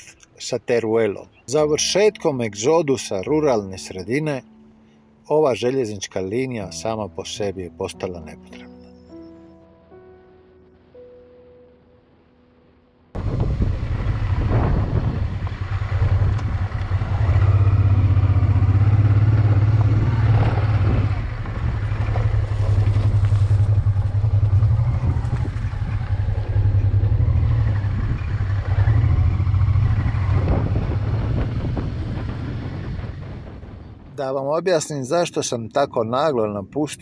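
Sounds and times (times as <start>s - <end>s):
wind and road noise: 11.9s - 37.0s
motorcycle engine running: 13.2s - 33.8s.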